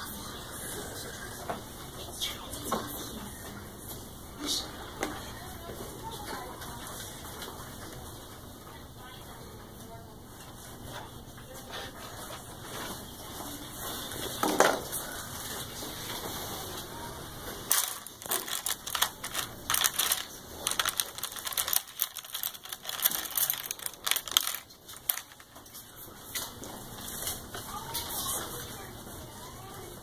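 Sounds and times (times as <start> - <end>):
hand rummaging in plastic box: 17.7 - 25.6.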